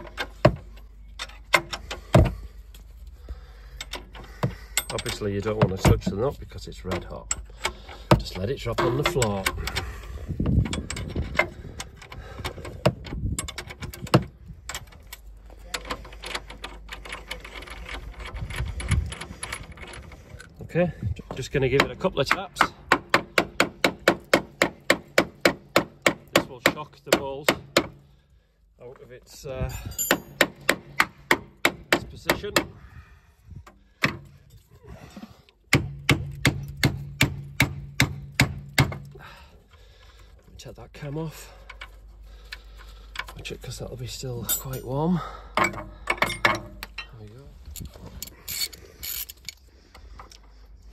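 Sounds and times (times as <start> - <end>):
metallic clinks of hand tools: 4.7 - 6.0, 29.7 - 30.4, 44.4 - 47.2
sharp knocks on metal: 21.8 - 28.0, 30.1 - 32.7, 35.7 - 39.1.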